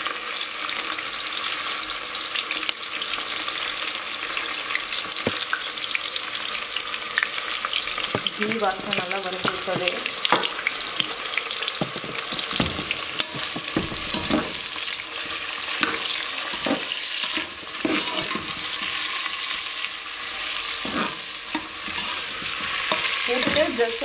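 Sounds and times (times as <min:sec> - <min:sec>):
onions sizzling in oil: 0:00.0 - 0:24.0
spatula scraping and knocking pot: 0:08.0 - 0:19.5, 0:20.7 - 0:24.0.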